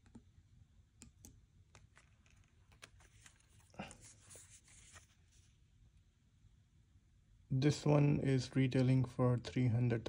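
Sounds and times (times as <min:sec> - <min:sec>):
soft ticks of handling: 0:01.1 - 0:05.2.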